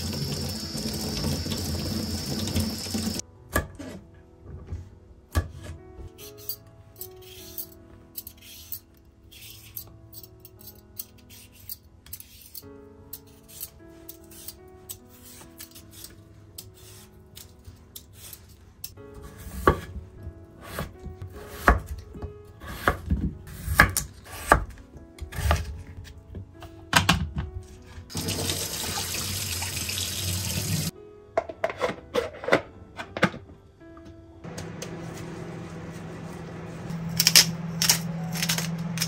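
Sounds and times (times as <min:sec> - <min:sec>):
soft background music: 0:00.0 - 0:39.0.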